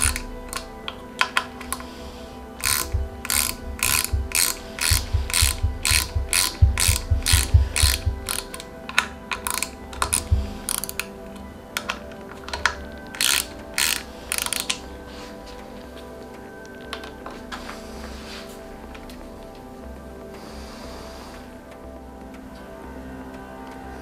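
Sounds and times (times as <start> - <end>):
ratchet wrench clicking: 0.0 - 0.7, 2.6 - 8.6, 9.3 - 11.1, 13.1 - 14.8.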